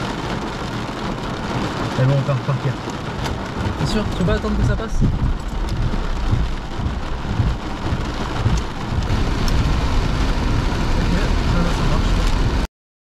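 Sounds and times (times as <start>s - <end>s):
heavy rain on car roof: 0.0s - 12.7s
steady low rumble: 2.8s - 12.7s.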